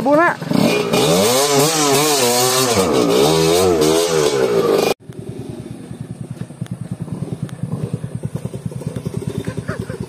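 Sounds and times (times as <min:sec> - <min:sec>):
dirt bike engine revving: 0:00.1 - 0:10.0
motorcycle engine thumping at low revs: 0:03.8 - 0:10.0.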